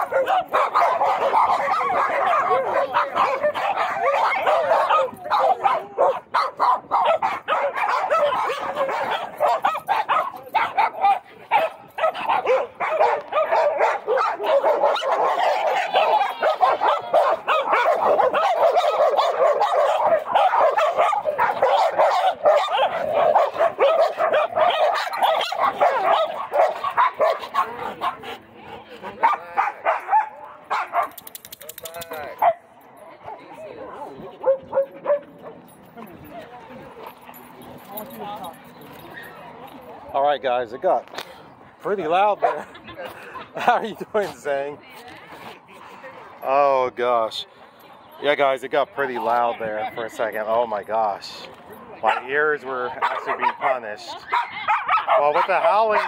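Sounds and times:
dogs howling and barking: 0.0s - 28.4s, 29.0s - 31.4s, 33.8s - 35.7s, 52.0s - 56.0s.

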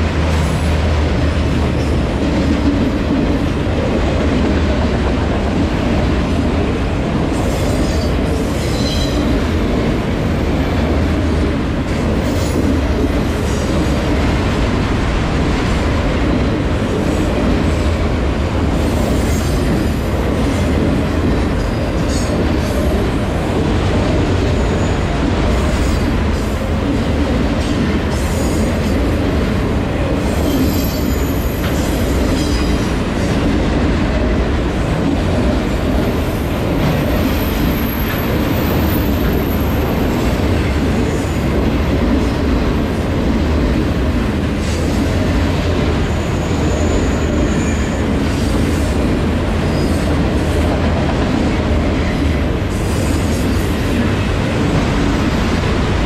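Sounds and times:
train wheels rumbling on rails: 0.0s - 56.0s.

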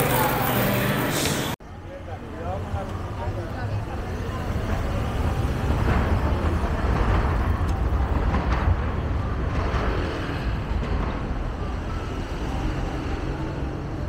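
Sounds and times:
city street traffic: 0.0s - 14.0s.

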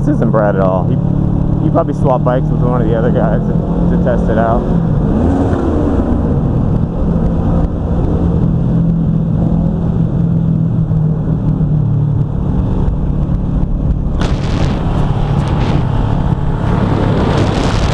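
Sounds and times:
motorcycle engine cruising: 0.0s - 17.9s
road rumble: 0.0s - 17.9s
wind noise on microphone: 4.5s - 17.9s.

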